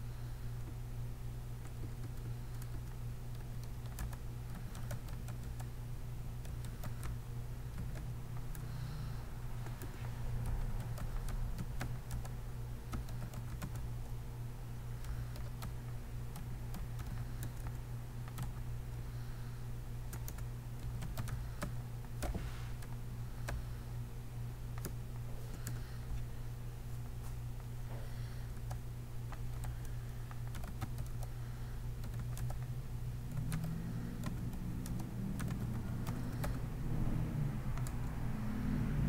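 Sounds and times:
steady low hum: 0:00.0 - 0:39.0
keyboard typing clicks: 0:01.6 - 0:05.7, 0:06.4 - 0:08.9, 0:09.6 - 0:14.2, 0:15.0 - 0:18.6, 0:20.1 - 0:23.6, 0:24.7 - 0:25.9, 0:28.5 - 0:31.3, 0:32.0 - 0:32.7, 0:33.3 - 0:36.6, 0:37.7 - 0:38.1.

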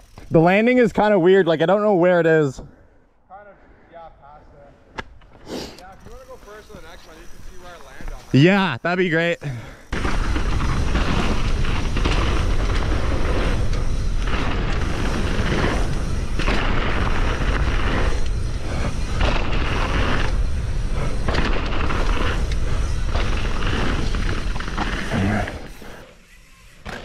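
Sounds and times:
bike tyres rumbling over dirt: 0:06.0 - 0:27.0.

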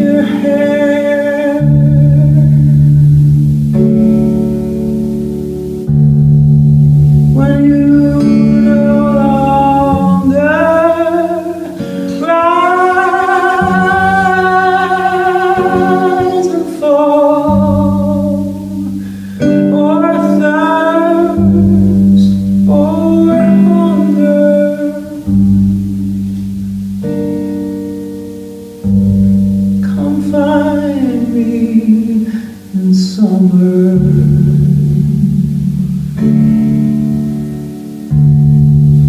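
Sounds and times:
woman singing: 0:00.0 - 0:02.7, 0:07.3 - 0:19.0, 0:19.6 - 0:25.7, 0:29.8 - 0:36.2
acoustic guitar chords: 0:00.0 - 0:39.0.

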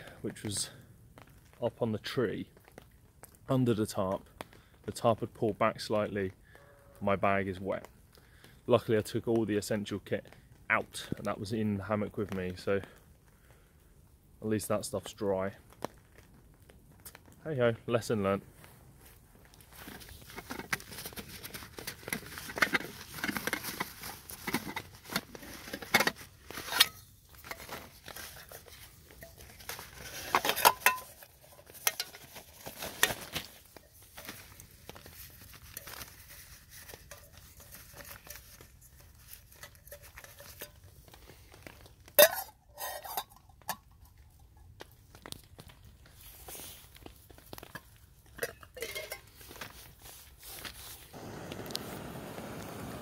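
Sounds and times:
metal pot and canister clinking: 0:20.2 - 0:34.5, 0:35.4 - 0:40.9, 0:41.6 - 0:44.5, 0:47.6 - 0:49.7.

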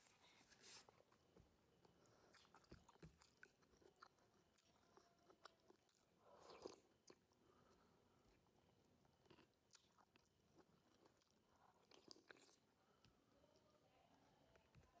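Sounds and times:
chewing with wet mouth clicks: 0:01.8 - 0:07.4, 0:09.0 - 0:12.7.

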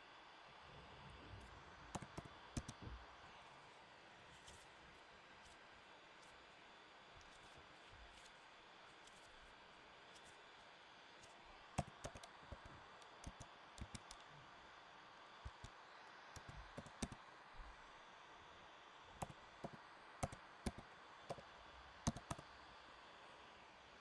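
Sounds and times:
typing on computer keyboard: 0:01.9 - 0:02.8, 0:11.8 - 0:14.2, 0:16.4 - 0:17.2, 0:19.2 - 0:21.4, 0:22.0 - 0:22.5.

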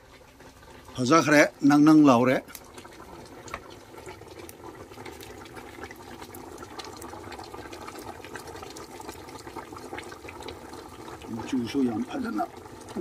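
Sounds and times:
stew boiling with bubbling hiss: 0:00.0 - 0:13.0.

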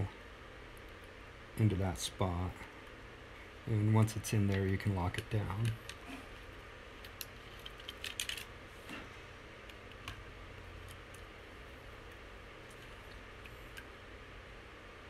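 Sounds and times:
low steady hum: 0:00.0 - 0:15.0
clicks of handling plastic parts: 0:07.0 - 0:09.0.

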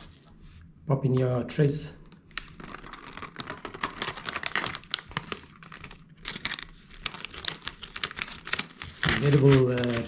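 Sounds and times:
plastic bag crinkling: 0:02.2 - 0:10.0.

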